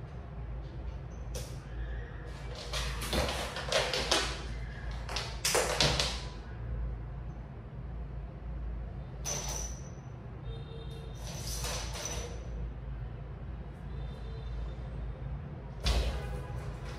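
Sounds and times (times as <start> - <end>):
cats rustling among toys: 2.3 - 5.2.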